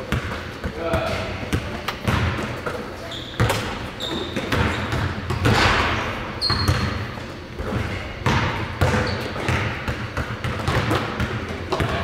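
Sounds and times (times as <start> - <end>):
basketballs bouncing on wood floor: 0.0 - 2.8, 3.4 - 12.0
shoe squeaks: 3.0 - 5.0, 6.4 - 7.2, 8.9 - 9.5.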